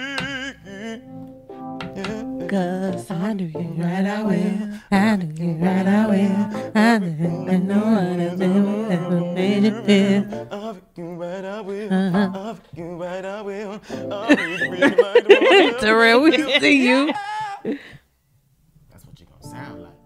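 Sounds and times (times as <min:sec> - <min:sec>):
electric keyboard chords: 0:00.0 - 0:04.8, 0:05.5 - 0:10.6, 0:11.8 - 0:12.5, 0:13.8 - 0:17.1, 0:19.5 - 0:20.0
man singing wordless runs: 0:01.9 - 0:17.7.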